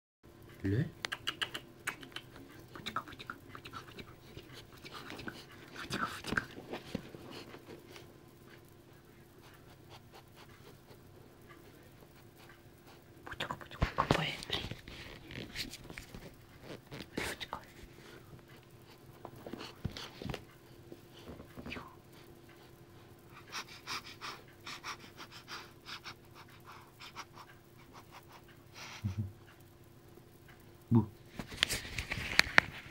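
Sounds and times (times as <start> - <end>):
puppy panting: 2.0 - 8.1, 9.3 - 13.1, 23.3 - 29.1
puppy snuffling and breathing: 3.6 - 8.1, 13.8 - 20.4.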